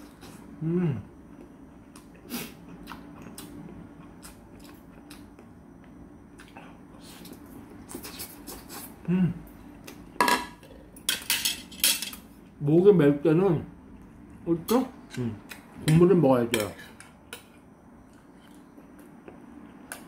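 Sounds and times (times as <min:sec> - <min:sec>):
man humming: 0:00.6 - 0:01.2, 0:09.0 - 0:09.4
man chewing: 0:01.3 - 0:10.1, 0:17.2 - 0:20.0.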